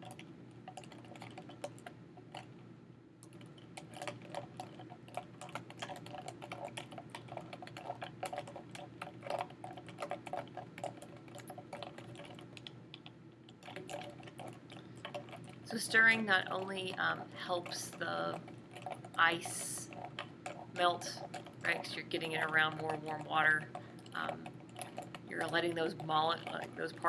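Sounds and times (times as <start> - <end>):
ice clinking in foam cup: 13.5 - 27.0.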